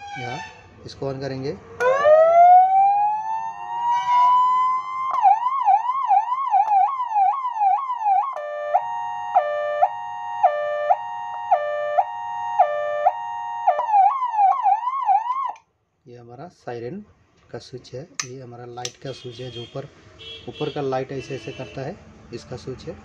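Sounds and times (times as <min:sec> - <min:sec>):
electronic siren wail and yelp: 0:00.0 - 0:00.6, 0:01.8 - 0:15.6.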